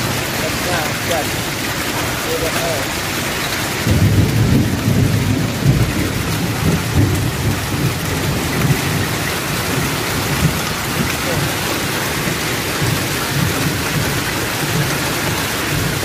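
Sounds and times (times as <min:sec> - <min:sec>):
hail and rain falling: 0:00.0 - 0:16.0
wind buffeting microphone: 0:03.2 - 0:16.0.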